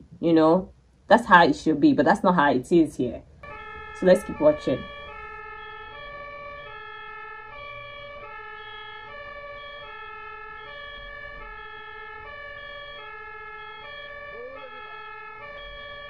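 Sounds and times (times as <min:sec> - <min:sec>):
ambulance two-tone siren: 0:03.4 - 0:16.0.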